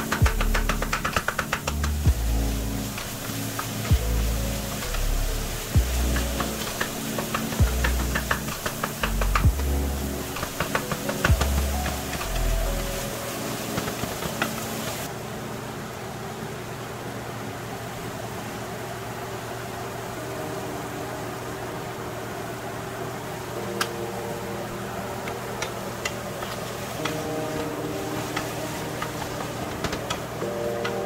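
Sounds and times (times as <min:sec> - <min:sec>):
food sizzling in a skillet: 0:00.0 - 0:15.1.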